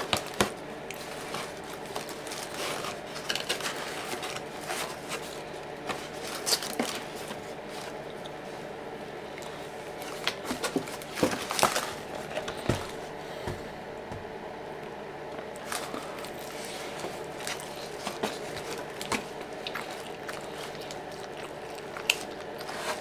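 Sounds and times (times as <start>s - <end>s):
faint steady hum: 0.0s - 23.0s
person eating crunchy food: 15.3s - 23.0s.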